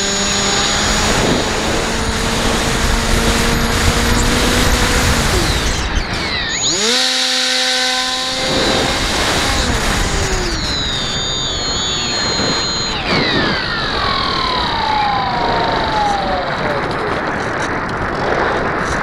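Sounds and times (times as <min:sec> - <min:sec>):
model plane motor whining: 0:00.0 - 0:18.2
wind rushing: 0:08.1 - 0:19.0.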